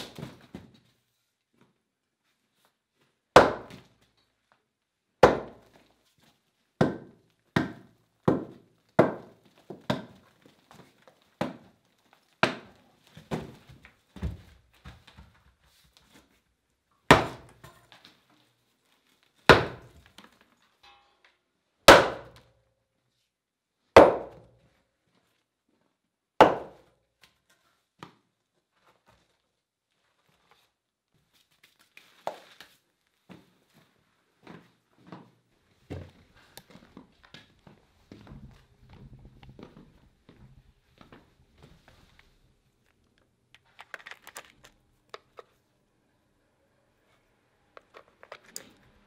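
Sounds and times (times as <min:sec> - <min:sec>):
sledgehammer striking stone: 0:17.1 - 0:17.5, 0:21.9 - 0:22.4, 0:24.0 - 0:24.4, 0:26.4 - 0:26.8.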